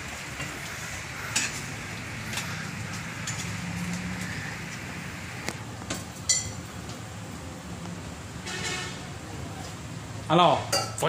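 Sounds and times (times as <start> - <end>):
metal spoon clinking on frying pan: 6.3 - 6.6.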